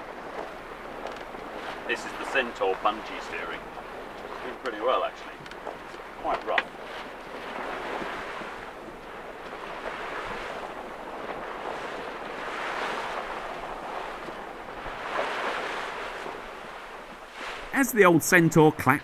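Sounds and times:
water rushing along a boat hull: 0.0s - 19.0s.

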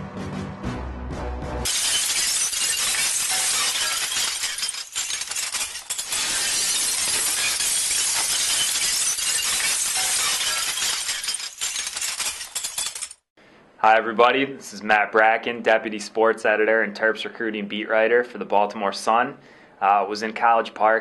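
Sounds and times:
glass shattering crash: 1.6s - 13.3s.

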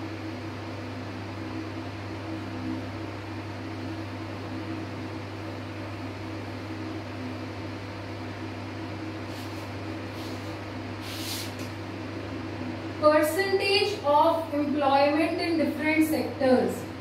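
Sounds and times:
light brushing strokes: 9.3s - 11.8s.

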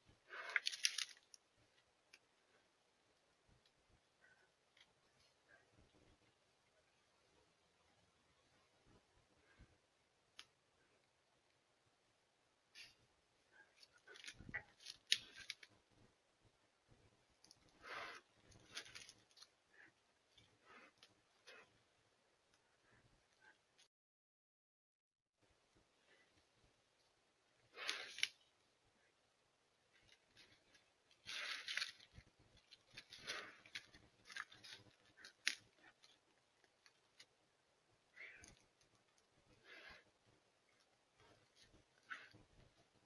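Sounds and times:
twig snapping: 0.5s - 1.4s
bear footsteps rustling dry leaves: 31.2s - 35.6s.

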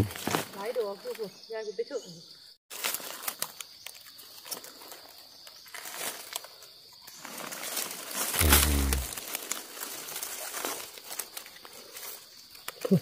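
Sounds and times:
insect drone: 0.2s - 13.0s
rustling in dry leaves: 2.7s - 13.0s
loud low hum: 8.4s - 9.1s.

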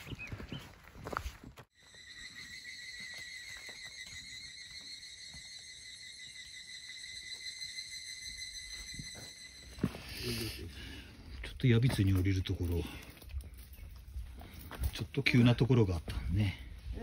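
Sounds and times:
high-pitched insect trill: 1.8s - 10.7s.

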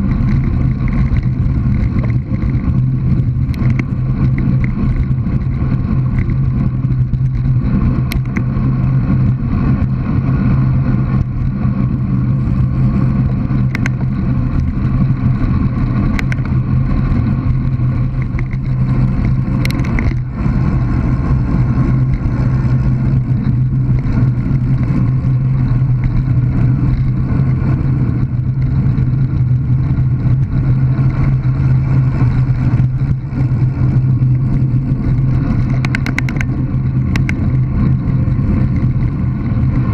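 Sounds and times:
bicycle tyre rumble on tarmac: 0.0s - 39.9s
wind rush: 0.0s - 39.9s.

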